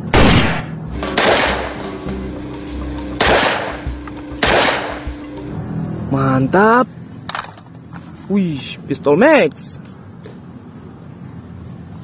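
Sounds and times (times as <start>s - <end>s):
pistol gunshots echoing: 0.0s - 1.9s, 3.2s - 3.8s, 4.4s - 5.0s
background music: 0.9s - 5.8s.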